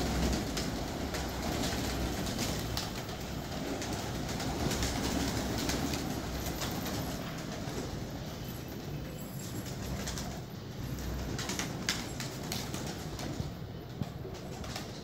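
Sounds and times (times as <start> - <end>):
pigeon wings flapping: 0.0 - 8.2, 9.6 - 15.0.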